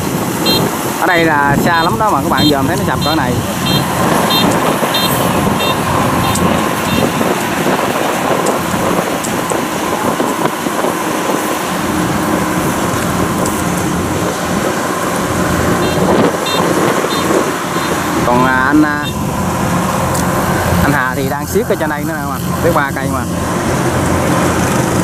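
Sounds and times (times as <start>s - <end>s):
combine harvester running: 0.0s - 25.0s.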